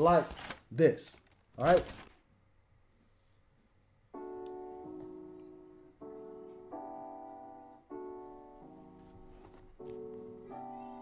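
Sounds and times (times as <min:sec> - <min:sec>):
sustained keyboard chords: 0:04.1 - 0:11.0.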